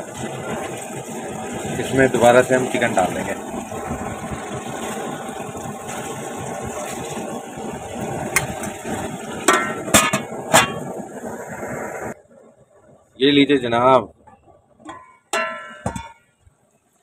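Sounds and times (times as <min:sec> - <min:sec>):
chicken sizzling in oil: 0:00.0 - 0:12.2
metal lid clinking on pot: 0:09.5 - 0:10.8, 0:14.9 - 0:16.3.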